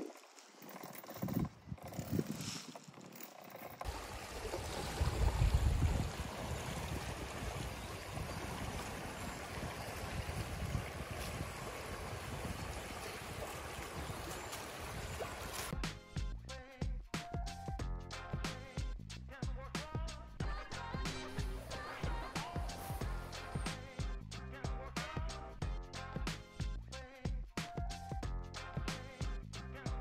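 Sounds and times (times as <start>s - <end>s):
swing chain creaking: 0.0s - 3.9s
stream rushing and gurgling: 3.8s - 15.7s.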